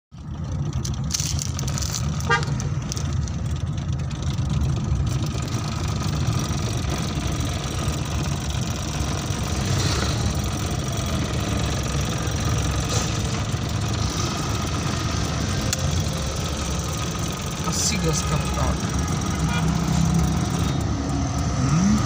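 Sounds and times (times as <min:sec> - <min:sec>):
car engine and road noise: 0:00.1 - 0:22.0
car horn toot: 0:02.2 - 0:02.7.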